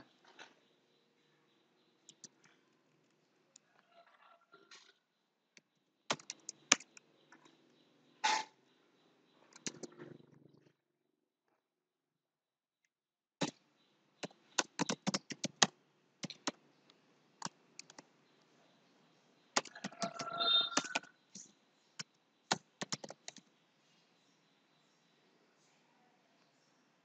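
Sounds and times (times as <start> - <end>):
computer keyboard typing: 14.6 - 16.6, 17.4 - 18.0, 19.6 - 21.1, 22.5 - 23.4
brief pitched tone: 20.1 - 20.9.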